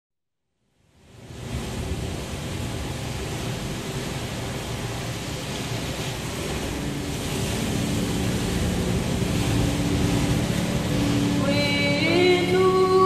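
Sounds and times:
wind: 0:00.6 - 0:13.0
low steady hum: 0:00.8 - 0:13.0
heavy surf breaking on rocks: 0:01.0 - 0:13.0.

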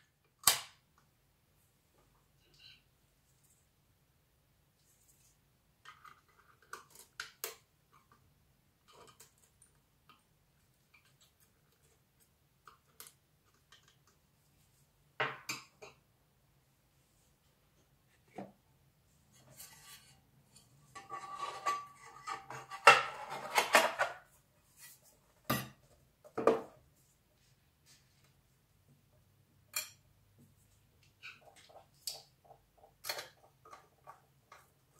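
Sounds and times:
metallic scraping and clinking: 0:19.4 - 0:24.0.

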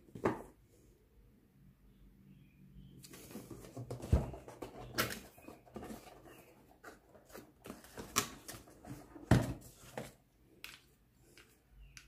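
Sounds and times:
cardboard rustling and scraping: 0:03.1 - 0:10.2.

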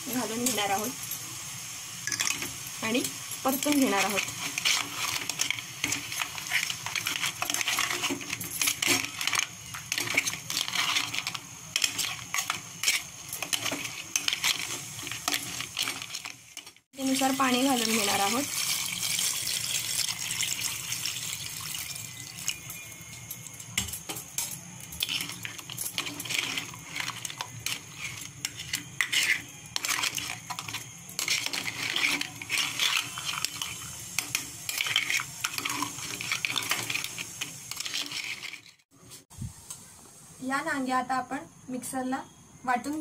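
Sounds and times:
metal spoon stirring in pot: 0:02.0 - 0:38.8
water pouring into metal pot: 0:17.0 - 0:23.2.

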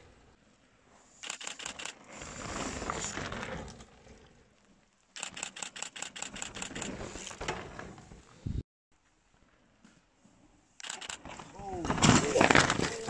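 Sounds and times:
camera handling scratchy clicks: 0:01.2 - 0:02.1, 0:05.2 - 0:07.0, 0:10.8 - 0:11.3.

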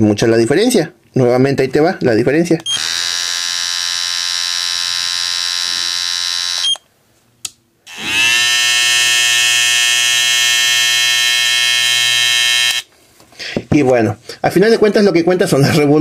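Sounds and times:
hair trimmer buzzing: 0:02.7 - 0:06.8, 0:07.9 - 0:12.9
trimmer motor whine and buzz: 0:02.7 - 0:06.8, 0:07.9 - 0:12.9.

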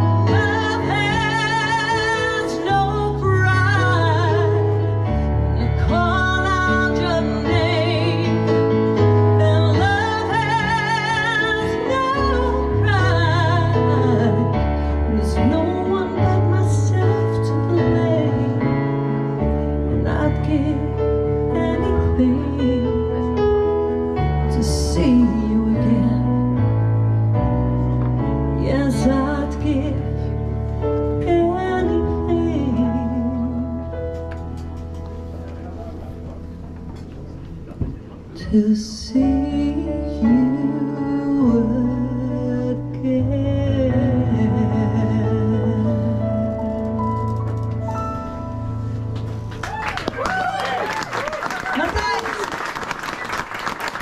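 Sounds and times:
woman singing with vibrato: 0:00.0 - 0:04.7, 0:05.5 - 0:18.7, 0:24.5 - 0:26.4, 0:31.2 - 0:33.9, 0:38.4 - 0:47.0.

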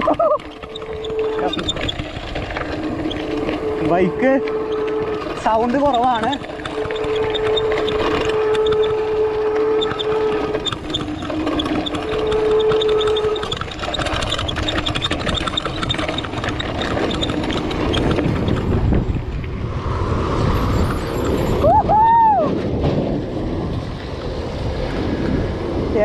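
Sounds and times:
freewheel hub ticking: 0:00.0 - 0:19.3
bike tyre and wind rumble: 0:00.0 - 0:26.0.

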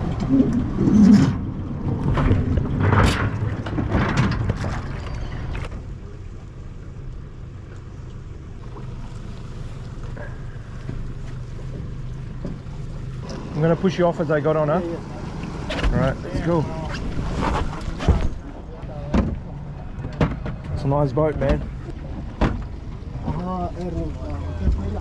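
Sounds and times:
aluminium boat knocking and scraping: 0:17.0 - 0:23.4.

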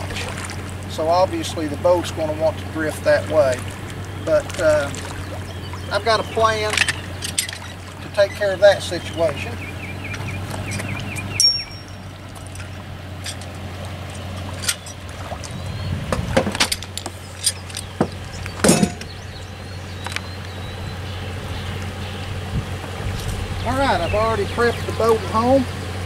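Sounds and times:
knocks and clunks on boat deck: 0:00.0 - 0:20.8
steady low hum: 0:00.0 - 0:26.0.

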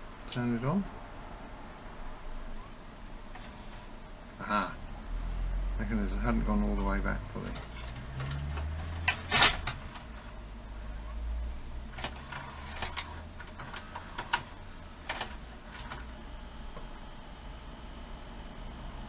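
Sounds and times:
mechanism clicks and clunks: 0:03.3 - 0:03.8, 0:06.8 - 0:10.3, 0:11.9 - 0:16.2
low motor hum: 0:06.8 - 0:17.1.

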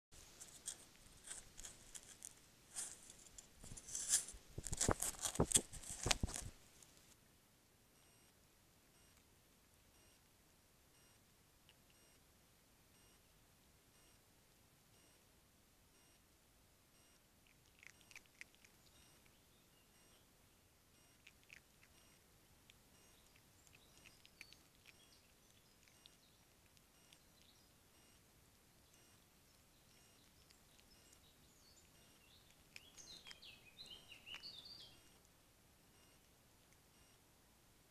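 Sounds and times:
scratching against camera housing: 0:00.4 - 0:06.6
faint high chirps and clicks: 0:00.4 - 0:07.2, 0:08.0 - 0:10.3, 0:10.9 - 0:12.3, 0:12.9 - 0:16.3, 0:16.9 - 0:37.3.

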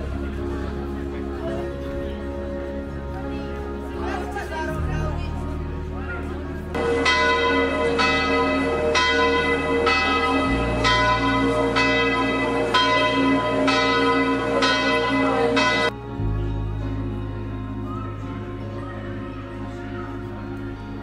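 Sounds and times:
church bell tolling: 0:06.7 - 0:16.0.

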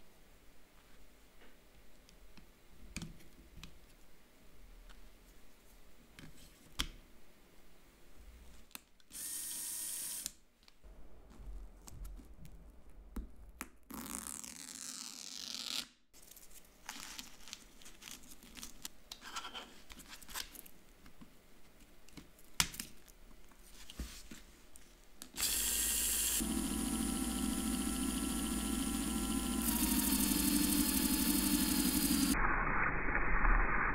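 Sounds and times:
small electric motor spinning gears: 0:09.2 - 0:10.3, 0:25.4 - 0:32.4.

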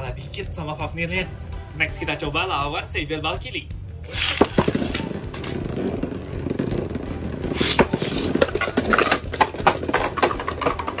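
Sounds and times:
spinning tops whirring on plastic: 0:04.1 - 0:05.7.

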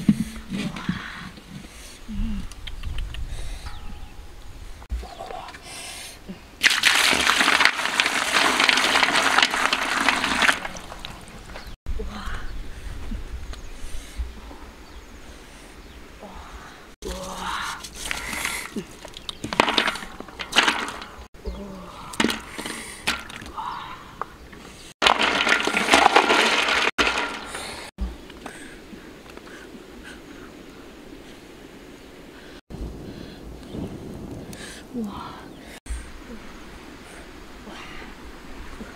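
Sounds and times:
liquid pouring into water: 0:06.6 - 0:11.3.

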